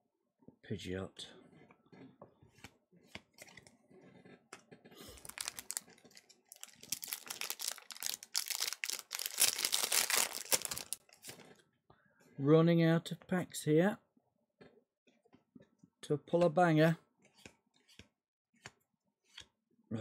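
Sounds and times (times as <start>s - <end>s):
foil wrapper crinkling and tearing: 5.0s - 11.4s.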